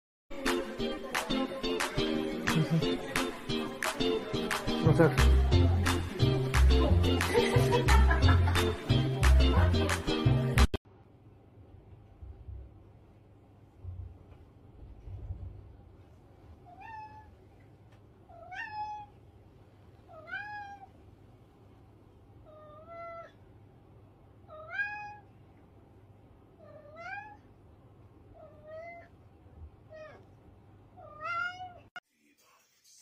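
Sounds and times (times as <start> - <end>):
cat meowing: 16.6 - 17.3, 18.3 - 19.2, 20.1 - 20.9, 22.5 - 23.4, 24.5 - 25.3, 26.6 - 27.5, 28.3 - 29.1, 29.9 - 30.3, 31.0 - 32.0.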